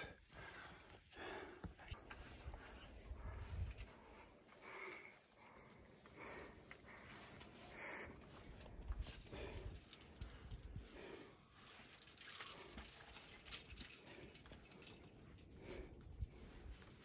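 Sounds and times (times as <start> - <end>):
climber breathing: 0.0 - 17.0
clothing rustling against rock: 1.8 - 17.0
climbing gear clinking: 6.5 - 17.0.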